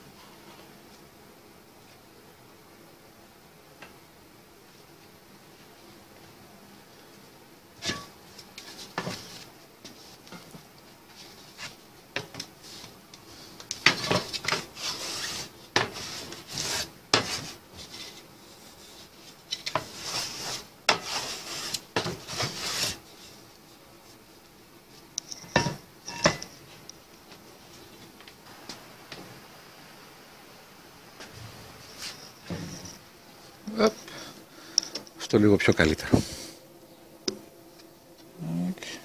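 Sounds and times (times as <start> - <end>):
metal scraping on wood: 7.8 - 12.9, 13.8 - 23.4, 25.2 - 26.6.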